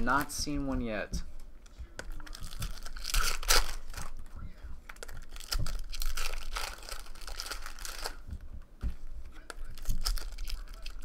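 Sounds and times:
foil wrappers crinkling and tearing: 0:02.2 - 0:08.2, 0:09.6 - 0:11.0.

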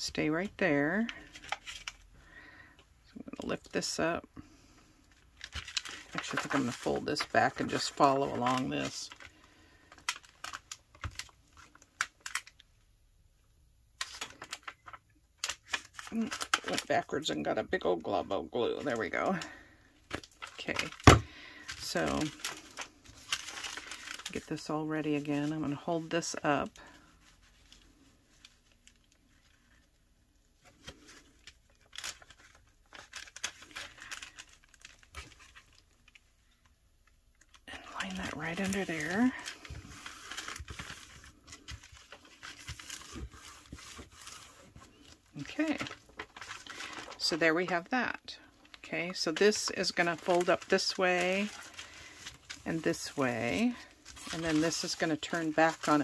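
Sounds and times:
paper being folded and pressed: 0:05.4 - 0:12.6, 0:14.0 - 0:29.9, 0:30.6 - 0:36.4, 0:37.4 - 0:47.9, 0:48.7 - 0:56.0.

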